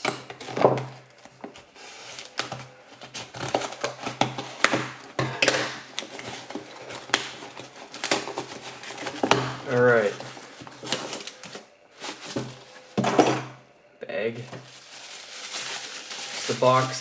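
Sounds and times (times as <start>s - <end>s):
cardboard flaps scraping and rustling: 6.0s - 13.0s, 14.4s - 17.0s.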